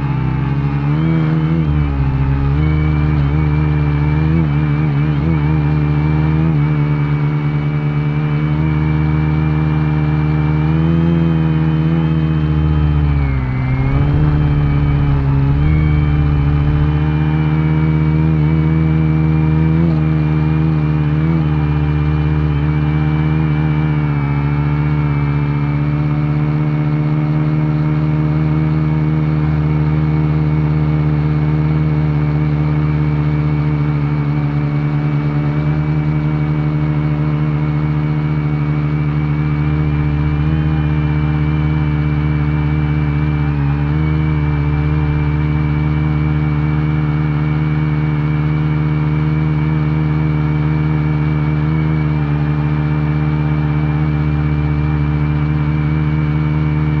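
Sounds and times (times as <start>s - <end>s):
drone motors humming: 1.4s - 5.1s, 12.3s - 19.0s.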